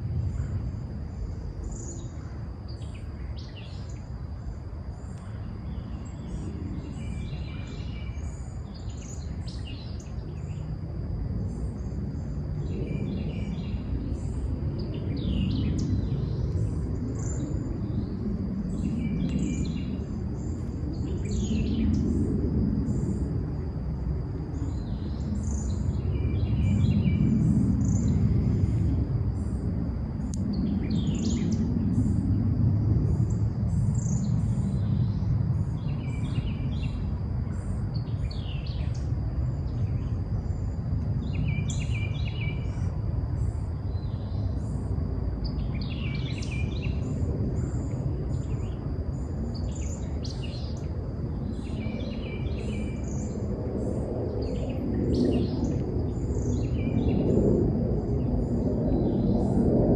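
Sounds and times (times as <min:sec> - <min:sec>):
low rumbling noise: 0:04.5 - 0:59.9
birds singing and calling: 0:30.6 - 0:31.6.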